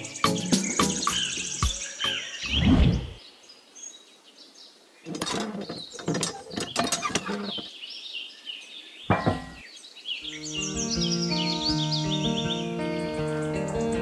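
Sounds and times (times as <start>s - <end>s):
plastic toy pump clicking and rattling: 5.1s - 7.7s
single knock: 9.1s - 9.6s
music with held notes: 10.3s - 14.0s.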